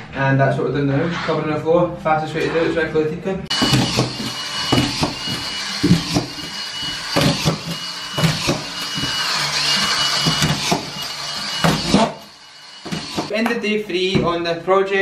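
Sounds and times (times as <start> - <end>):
screw gun motor whine: 3.5 - 13.3.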